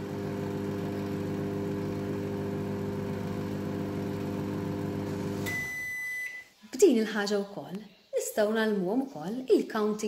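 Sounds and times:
microwave oven humming: 0.0 - 5.8
high-pitched microwave beep: 5.4 - 6.5.

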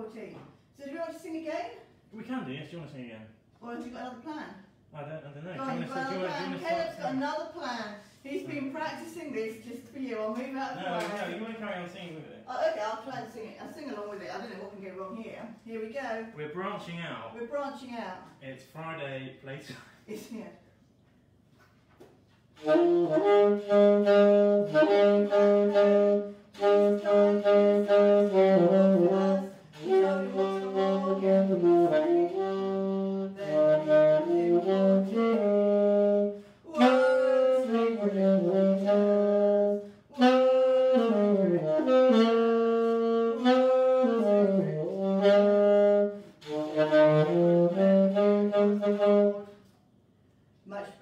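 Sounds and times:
solo wind instrument melody: 22.6 - 49.6.

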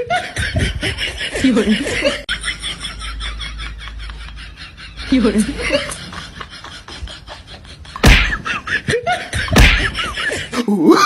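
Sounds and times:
loud smacks: 8.0 - 8.5, 9.5 - 10.1.

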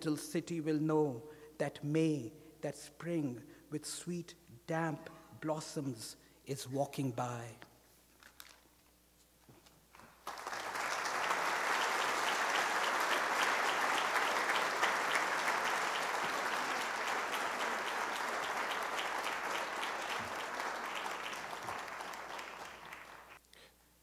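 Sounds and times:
audience applauding: 10.0 - 23.4.

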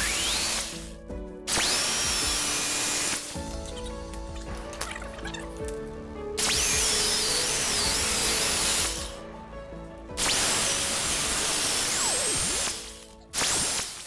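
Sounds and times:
jigsaw cutting wood: 0.0 - 0.9, 1.5 - 3.4, 6.4 - 9.2, 10.2 - 14.0
background music: 0.0 - 14.0.

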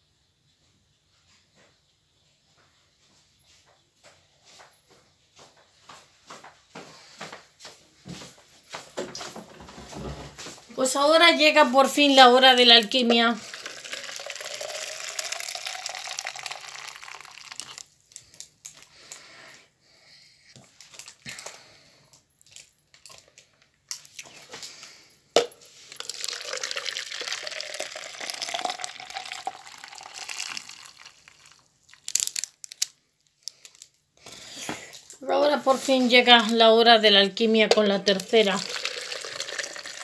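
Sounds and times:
plastic crinkling: 12.5 - 19.2, 25.8 - 34.5
water splashing into a container: 13.3 - 17.8, 25.9 - 32.3, 38.2 - 40.0.

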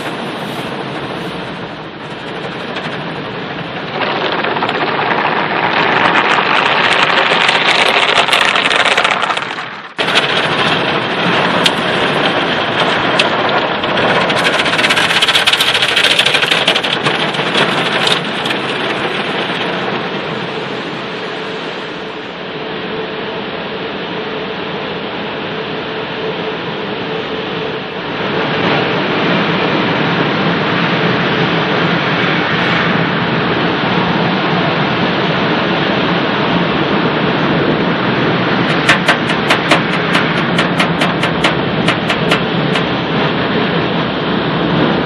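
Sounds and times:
water spray pelting a car: 0.0 - 22.2, 38.6 - 43.0.

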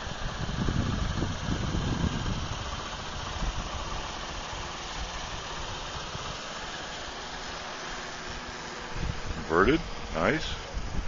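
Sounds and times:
wind rumble on microphone: 0.0 - 4.1, 8.9 - 11.0.

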